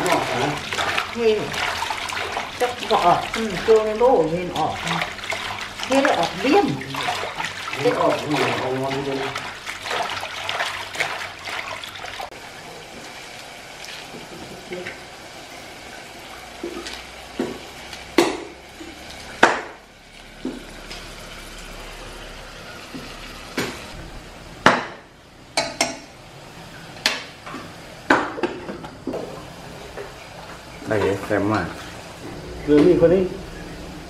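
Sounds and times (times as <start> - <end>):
water splashing in metal basin: 0.0 - 12.4.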